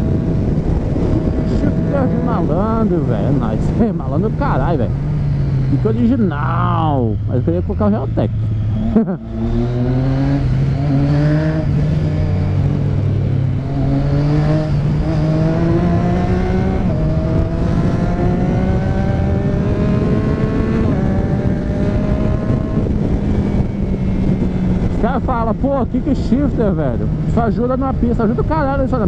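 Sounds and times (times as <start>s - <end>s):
motorcycle engine accelerating: 0.0s - 29.0s
road rumble: 0.0s - 29.0s
wind: 0.0s - 29.0s.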